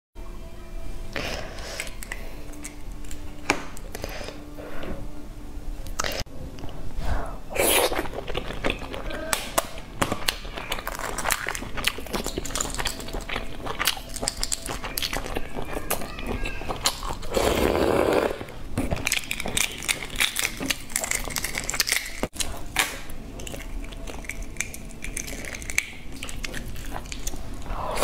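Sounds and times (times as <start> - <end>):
egg shells crackling while peeled: 1.8 - 4.0, 8.0 - 17.5, 18.8 - 27.7.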